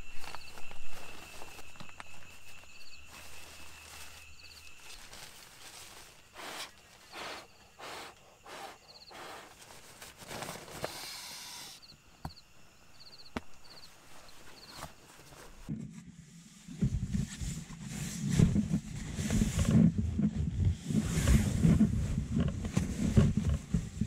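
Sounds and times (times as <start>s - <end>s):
sleeping bag nylon rustling: 0.0s - 11.6s
insect chirps: 0.0s - 24.0s.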